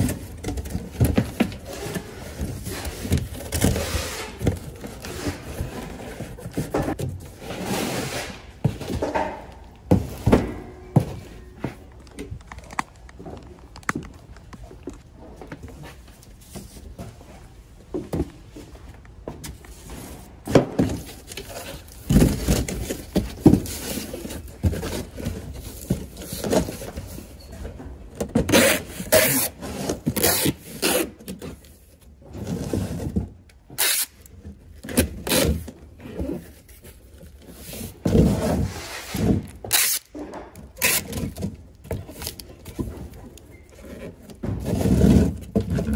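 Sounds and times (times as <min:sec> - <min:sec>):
cardboard scraping and rustling: 0:00.0 - 0:11.9, 0:34.4 - 0:39.8, 0:40.6 - 0:45.9
cardboard boxes thunking: 0:08.5 - 0:11.9, 0:20.4 - 0:27.2, 0:44.0 - 0:45.9.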